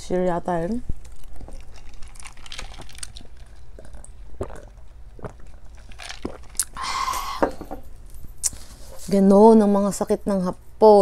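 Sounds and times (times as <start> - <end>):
chewing: 0.8 - 6.8.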